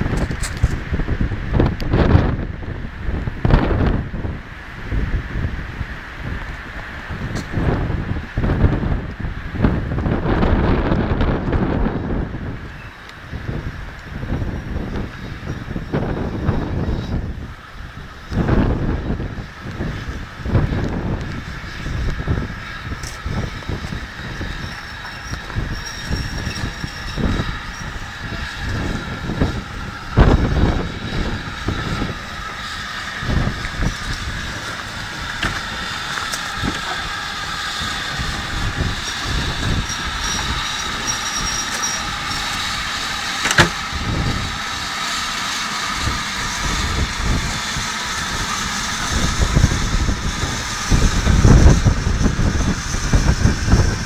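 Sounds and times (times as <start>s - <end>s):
steam hissing: 0.0s - 54.0s
steam locomotive rumbling on rails: 0.0s - 54.0s.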